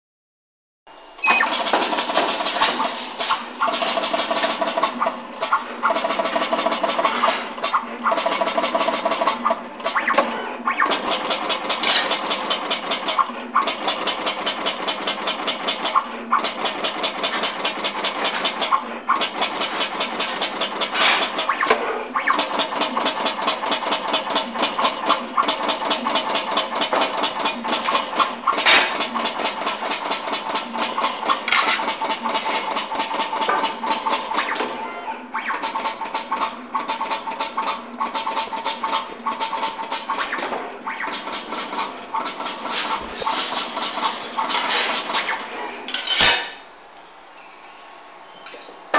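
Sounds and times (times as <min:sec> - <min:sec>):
machine rattling with faint whine: 0:01.1 - 0:46.6
sharp mechanical clicks: 0:01.2 - 0:34.8, 0:35.4 - 0:45.5.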